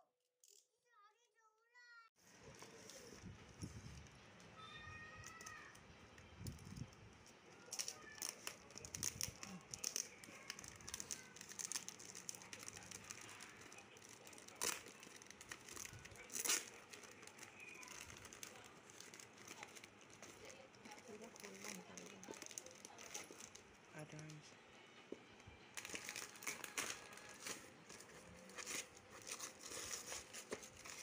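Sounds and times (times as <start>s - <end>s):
plastic mailer crinkling and tearing: 5.2s - 24.3s, 25.8s - 31.0s.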